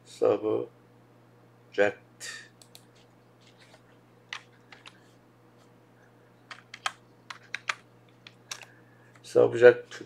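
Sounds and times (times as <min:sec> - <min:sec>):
computer keyboard keystrokes: 0:02.6 - 0:02.9, 0:04.3 - 0:05.0, 0:06.5 - 0:08.7.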